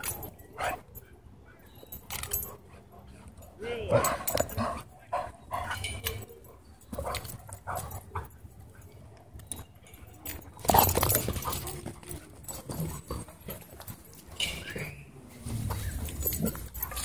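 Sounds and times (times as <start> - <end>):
dogs growling and yipping: 15.6 - 17.0.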